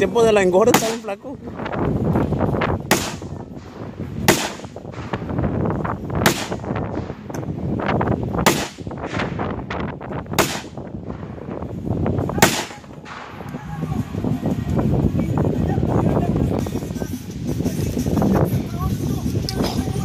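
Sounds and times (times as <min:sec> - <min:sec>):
rifle shots: 0:02.9 - 0:05.5, 0:06.2 - 0:07.2, 0:08.4 - 0:09.5, 0:10.3 - 0:10.8, 0:12.4 - 0:13.6.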